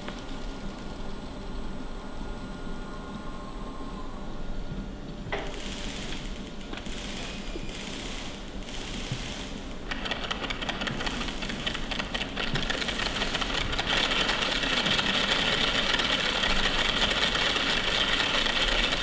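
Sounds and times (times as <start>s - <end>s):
electric motors whirring and clicking: 5.3s - 19.0s.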